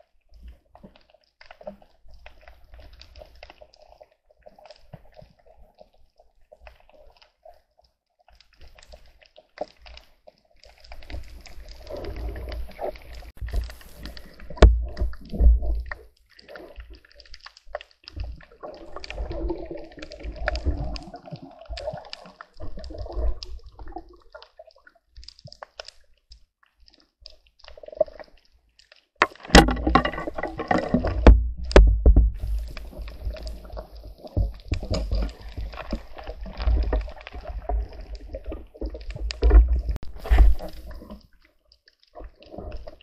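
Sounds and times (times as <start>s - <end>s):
underwater water sloshing and gurgling: 0.0s - 43.0s
sharp clicks and knocks: 29.2s - 32.6s.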